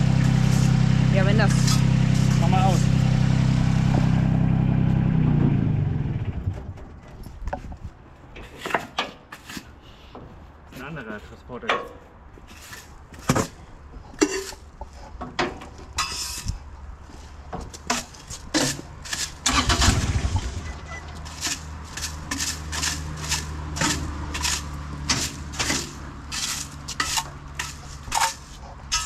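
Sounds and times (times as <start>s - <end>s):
diesel engine starting and idling: 0.0s - 7.0s, 19.4s - 29.0s.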